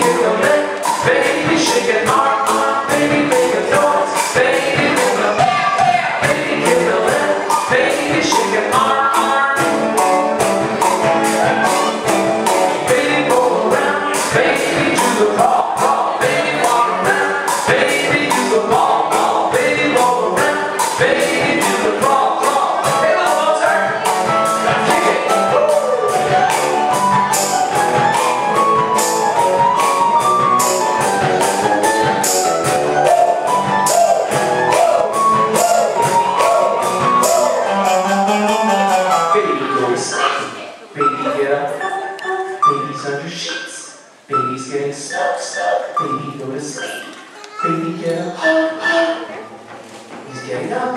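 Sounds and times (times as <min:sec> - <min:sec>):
person singing: 0:00.0 - 0:30.3, 0:31.2 - 0:49.5
percussion beat: 0:00.0 - 0:40.4
keyboard: 0:00.0 - 0:49.6
acoustic guitar: 0:00.0 - 0:50.9.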